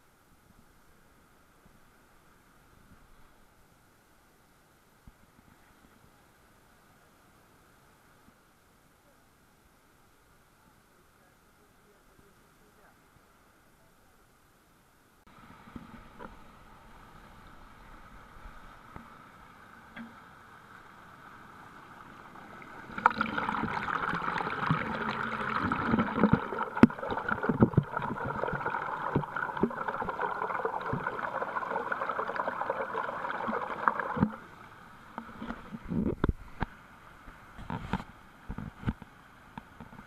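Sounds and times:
water pouring over a weir: 0:22.4 - 0:34.5
irregular thumps: 0:23.0 - 0:34.4.

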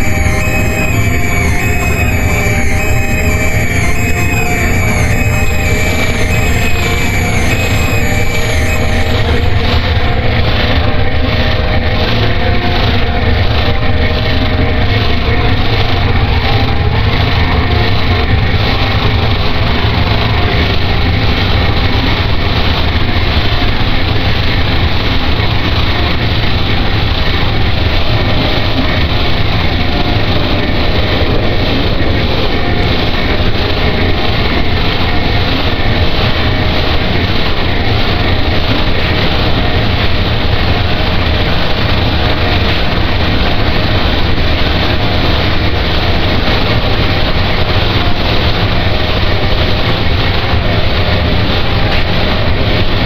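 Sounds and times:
harsh noise music: 0:00.0 - 0:11.0.

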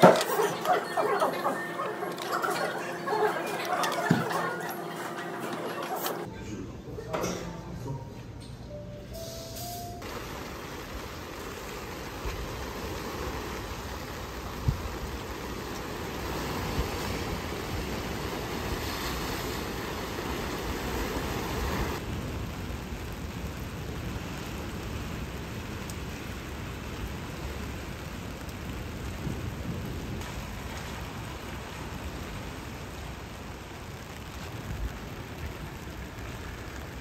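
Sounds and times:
sea waves washing over rocks: 0:10.0 - 0:26.1.

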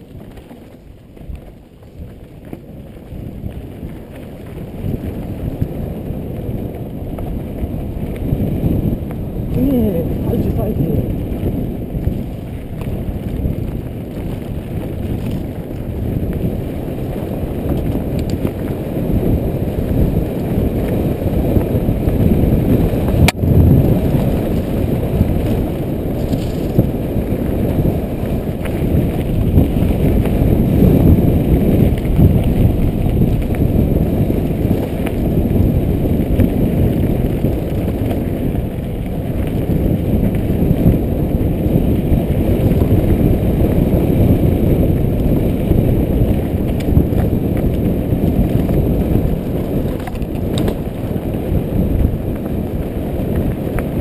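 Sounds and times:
bike tyre and wind rumble: 0:00.0 - 0:54.0
small rattles: 0:26.2 - 0:26.8.

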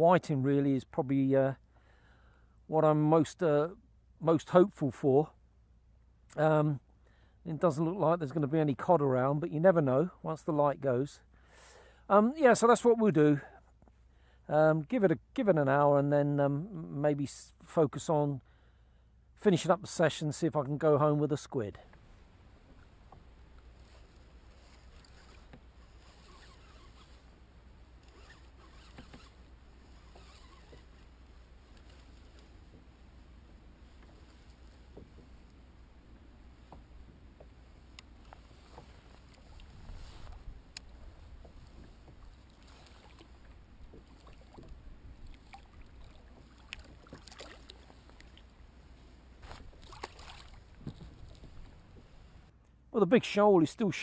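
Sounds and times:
water lapping against kayak hull: 0:21.8 - 0:52.5
fishing rod clicks and knocks: 0:28.0 - 0:31.1
small splashes: 0:38.0 - 0:48.6, 0:49.4 - 0:52.2.

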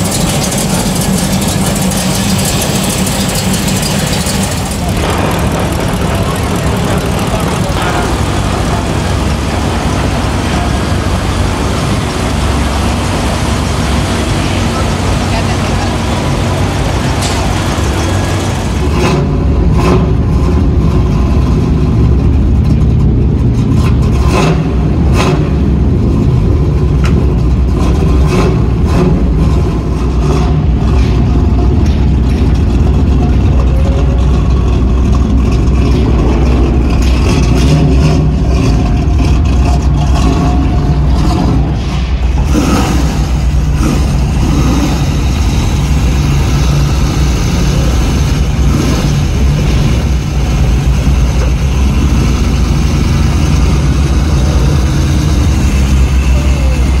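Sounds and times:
short sharp exhaust cracks: 0:00.0 - 0:10.6
car engine deep exhaust note: 0:00.0 - 0:57.0.

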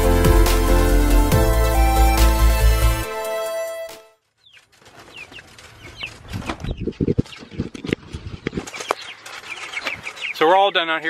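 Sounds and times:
chicks peeping: 0:04.3 - 0:11.0.

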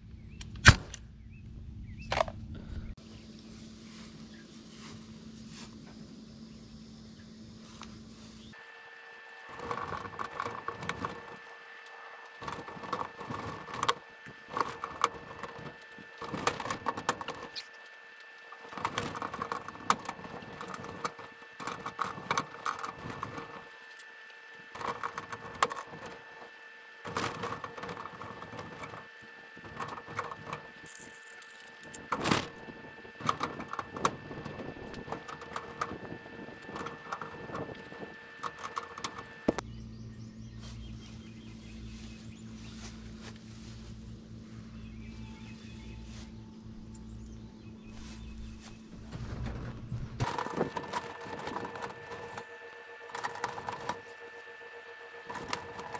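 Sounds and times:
wire panels rattling: 0:09.4 - 0:17.8, 0:18.4 - 0:39.6, 0:48.9 - 0:55.9.

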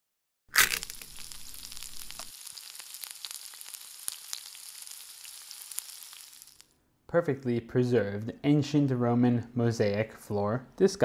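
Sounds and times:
food sizzling in a pan: 0:00.6 - 0:06.7.

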